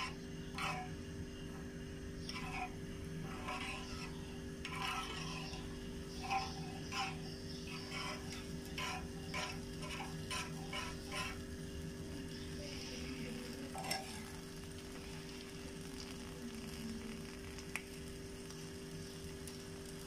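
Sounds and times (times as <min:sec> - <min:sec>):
metal utensil scraping frying pan: 0:00.0 - 0:15.5
low hum: 0:00.0 - 0:17.6
oil sizzling faintly: 0:00.0 - 0:20.0.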